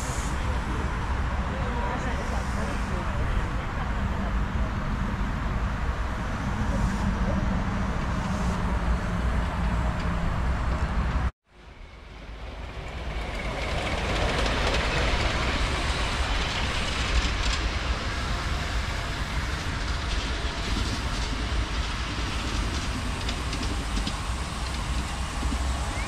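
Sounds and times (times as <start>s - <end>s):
miniature train wheels rumbling: 12.4s - 26.0s.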